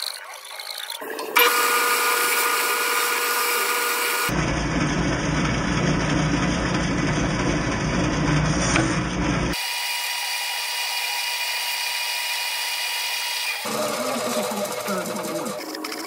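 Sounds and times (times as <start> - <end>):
bandsaw cutting wood: 0.0 - 4.3, 9.5 - 16.0.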